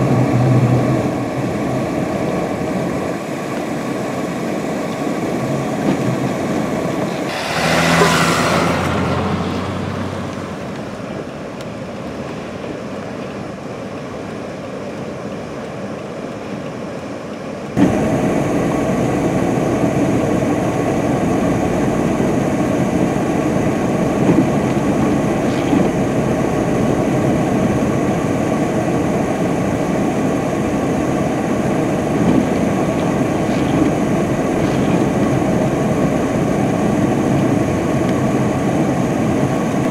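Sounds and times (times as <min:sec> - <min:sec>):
vehicle running through snow: 0:05.4 - 0:11.9, 0:28.5 - 0:39.9
engine revving and tyre spin: 0:07.1 - 0:11.6, 0:31.6 - 0:39.4.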